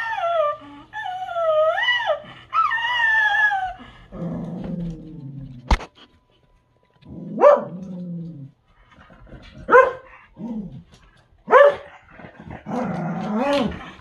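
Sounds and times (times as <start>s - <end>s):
dogs barking: 7.3s - 7.9s, 9.6s - 10.2s, 11.4s - 12.0s.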